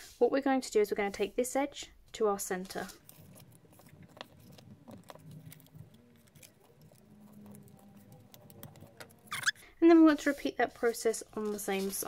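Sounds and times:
paper rustling while folded: 2.5 - 12.0.

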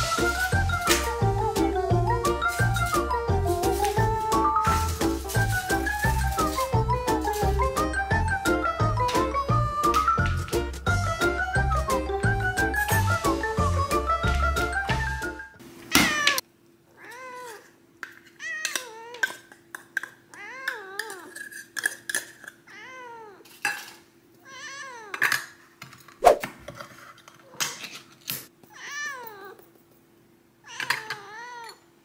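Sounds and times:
cat meowing: 16.0 - 17.7, 22.7 - 23.4, 24.4 - 25.2, 30.7 - 31.8
dishes and cutlery clinking: 30.8 - 31.9.

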